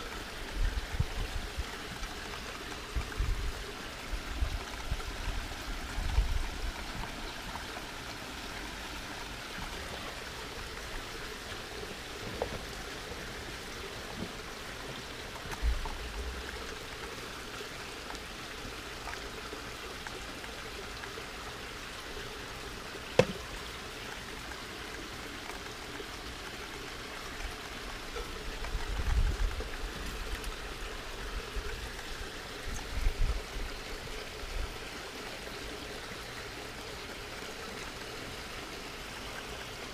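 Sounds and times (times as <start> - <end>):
running water: 0.0 - 39.9.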